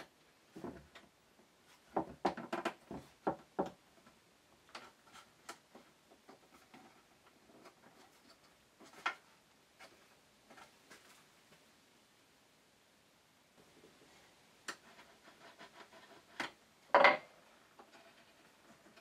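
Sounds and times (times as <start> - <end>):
wooden clicks and knocks: 1.9 - 6.8, 16.4 - 18.0.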